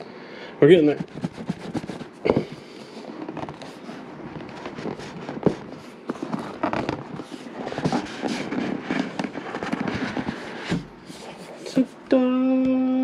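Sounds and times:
crackle of clicks and scrapes: 0:02.8 - 0:10.8
cardboard box sliding open: 0:03.1 - 0:11.8.

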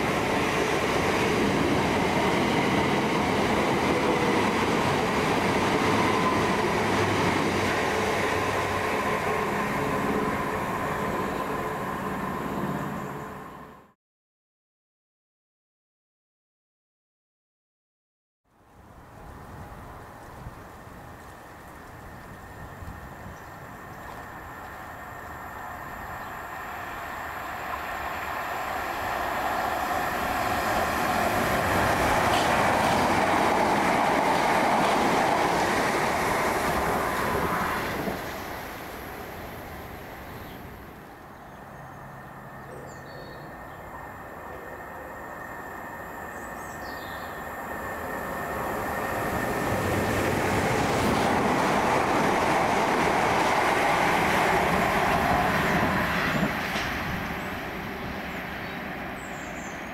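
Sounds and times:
electric train running on rails: 0:00.0 - 0:14.0, 0:18.6 - 0:59.9
faint bird chirps: 0:41.3 - 0:45.6.

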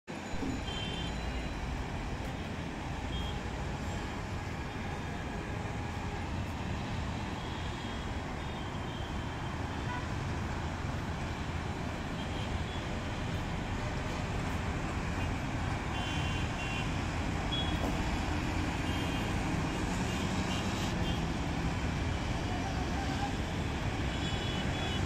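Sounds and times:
road traffic noise: 0:00.1 - 0:25.0.

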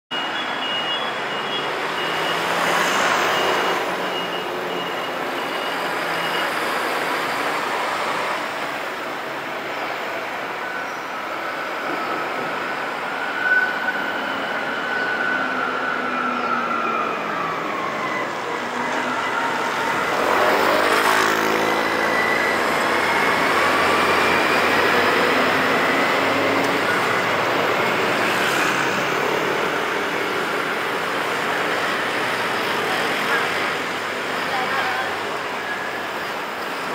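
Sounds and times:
bus driving past: 0:00.2 - 0:36.9
cars driving past: 0:18.1 - 0:34.6
motor scooters driving past: 0:20.0 - 0:26.9.

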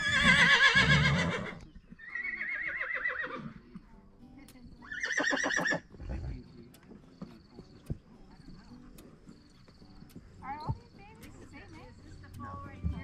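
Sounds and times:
horses whinnying: 0:00.0 - 0:03.6, 0:04.8 - 0:06.4.

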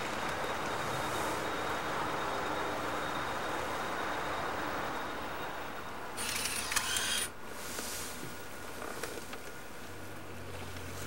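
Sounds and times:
background hiss: 0:00.0 - 0:11.0
camcorder mechanism hiss and clicks: 0:06.2 - 0:07.4.

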